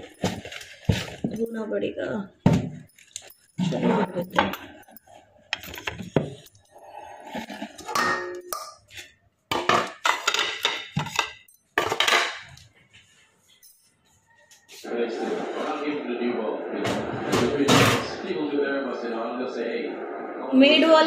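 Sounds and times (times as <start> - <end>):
metal bowls and plates clattering: 0.0 - 1.7, 2.5 - 12.8.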